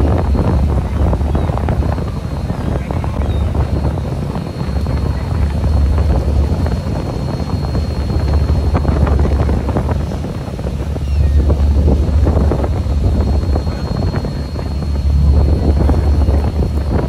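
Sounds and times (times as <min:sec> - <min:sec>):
boat engine low rumble: 0:00.0 - 0:17.0
wind buffeting microphone: 0:00.0 - 0:17.0.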